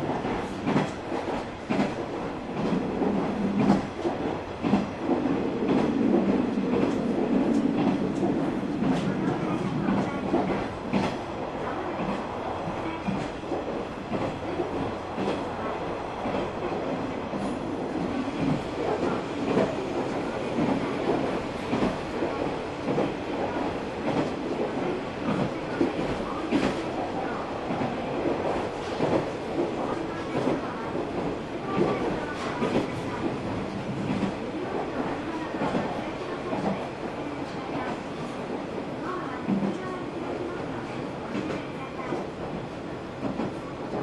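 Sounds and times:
railcar engine and wheels rumbling: 0.0s - 44.0s
clacks and knocks: 0.2s - 2.0s.

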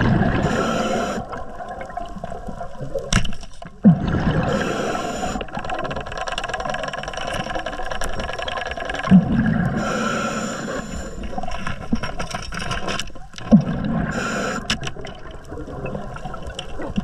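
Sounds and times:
exhaled bubbles gushing: 0.0s - 3.1s, 3.7s - 6.8s, 8.4s - 9.9s, 13.3s - 17.0s
fine underwater crackle: 0.0s - 17.0s
scuba regulator hiss: 0.4s - 1.3s, 4.5s - 5.5s, 9.8s - 11.2s, 14.1s - 14.7s.

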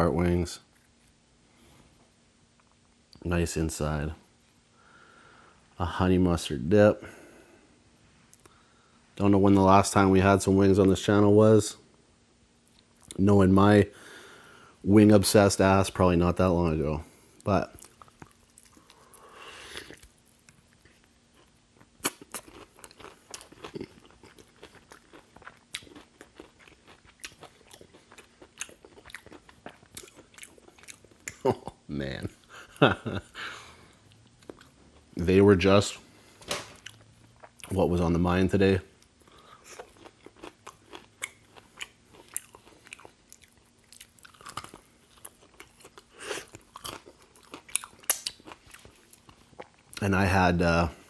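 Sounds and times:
crunching fried chicken: 17.4s - 31.6s, 39.1s - 50.6s.

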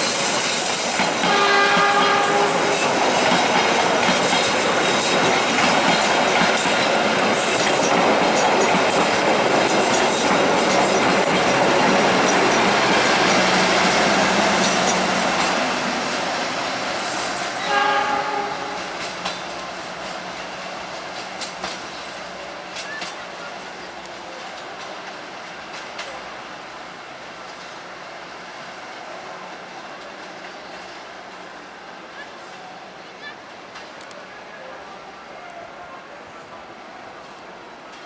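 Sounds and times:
train wheels rushing on rails: 0.0s - 38.0s
short train horn: 1.2s - 3.0s, 17.6s - 19.1s.

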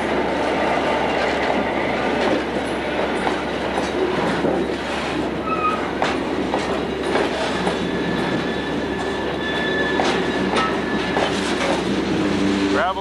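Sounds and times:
train wheels clacking over rail joints: 1.1s - 12.6s
faint wheel squeal: 5.4s - 5.8s, 7.5s - 11.2s.

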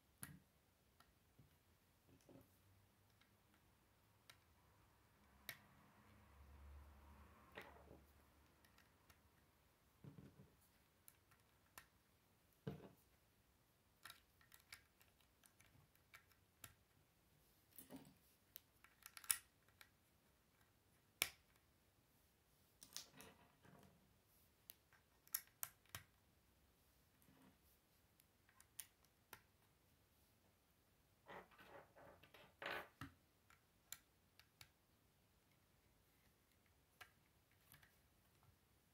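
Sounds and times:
sharp plastic snaps: 18.5s - 20.0s
plastic bricks clicking: 18.6s - 19.9s.

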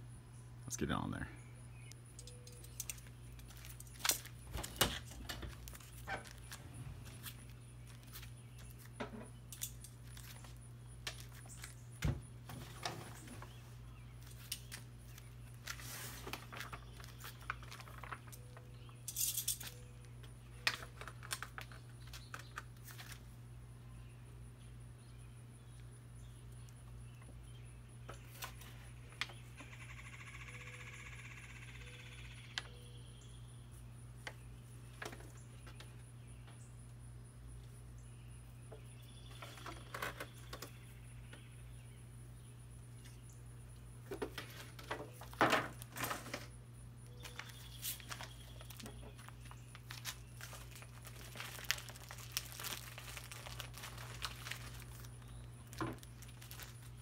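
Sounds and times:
foil pans and metal racks clattering: 4.0s - 7.4s, 12.0s - 13.6s, 44.1s - 46.5s.

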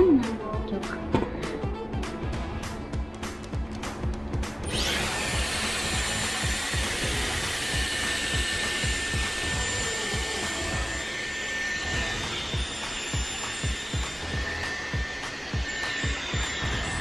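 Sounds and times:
hair styler blowing air: 4.5s - 17.0s.

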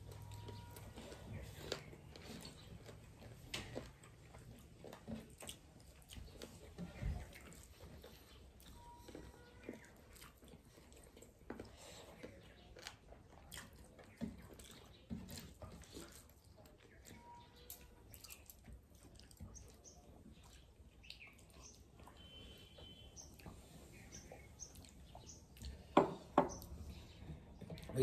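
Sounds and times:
chewing and mouth noises: 0.0s - 28.0s.

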